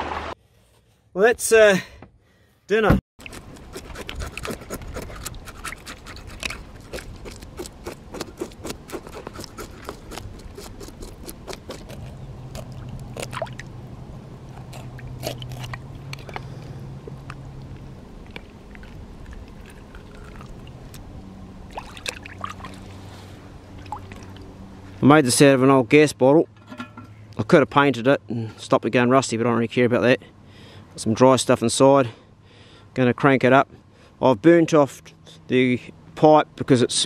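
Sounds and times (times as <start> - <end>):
knife scraping and cutting fish: 3.2 - 13.4
water splashing and dripping: 21.6 - 23.0, 23.7 - 24.5.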